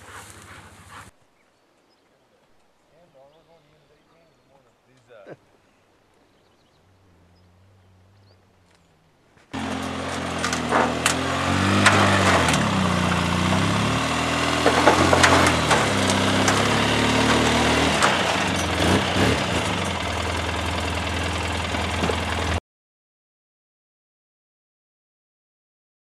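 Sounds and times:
off-road vehicle engine revving: 6.7 - 22.6
clanks and knocks: 9.6 - 13.6, 14.5 - 20.0, 21.8 - 22.3.

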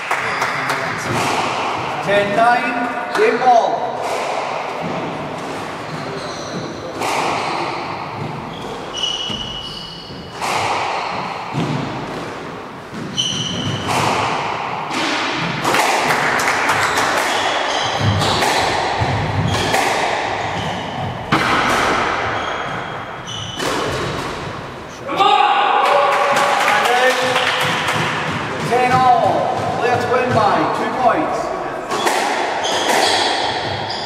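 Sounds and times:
shoes squeaking on wooden floor: 4.8 - 14.0, 16.8 - 25.0, 31.9 - 34.0
squash ball cracking off rackets: 10.3 - 22.4, 31.9 - 33.9.

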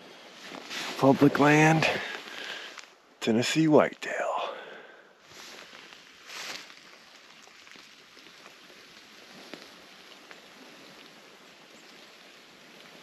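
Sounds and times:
rain pattering on leaves: 0.0 - 13.0
short rustle: 0.2 - 2.9, 5.2 - 7.7.

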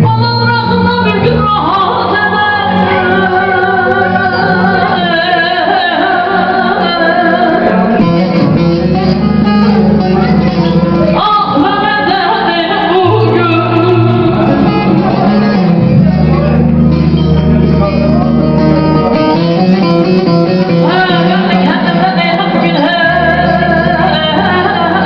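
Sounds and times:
woman singing folk song: 0.0 - 7.7, 11.2 - 14.8, 20.9 - 25.0
plucked string instrument: 0.0 - 25.0.

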